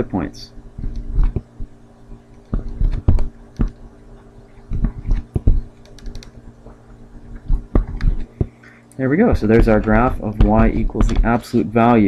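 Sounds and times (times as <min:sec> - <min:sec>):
steady low hum: 0:00.0 - 0:12.0
stylus tapping on pen tablet: 0:04.7 - 0:06.3, 0:07.4 - 0:08.5
dull thuds: 0:09.3 - 0:11.4.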